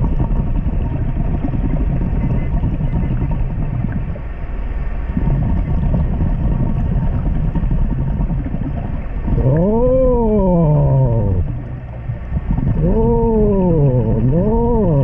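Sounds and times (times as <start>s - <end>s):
underwater rumble and churning water: 0.0s - 15.0s.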